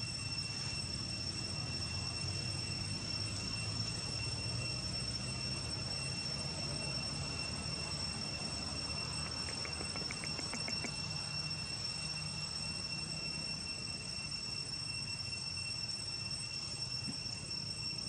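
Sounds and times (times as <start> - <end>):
insects droning: 0.0 - 18.0
faint clicks: 9.2 - 11.0.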